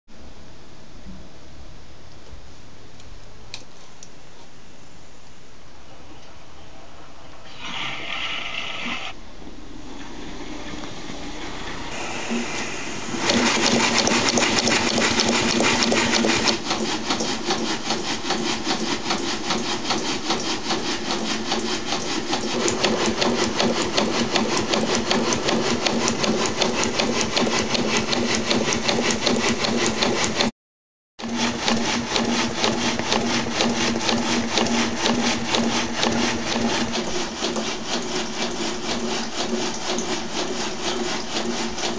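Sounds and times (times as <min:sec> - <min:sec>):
steam engine clatter: 0:10.0 - 0:30.5, 0:31.2 - 0:41.9.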